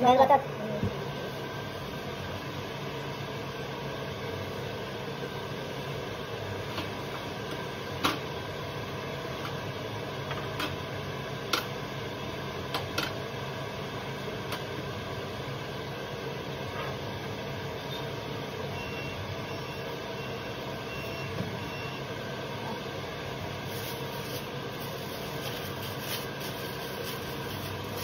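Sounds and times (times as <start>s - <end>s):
kitchen mechanical hum: 0.0s - 28.0s.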